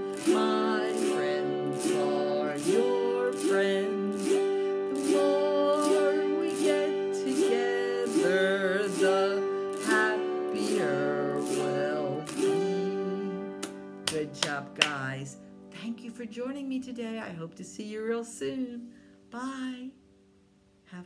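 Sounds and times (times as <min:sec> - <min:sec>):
strummed acoustic guitar: 0:00.0 - 0:15.7
woman singing: 0:00.0 - 0:20.0.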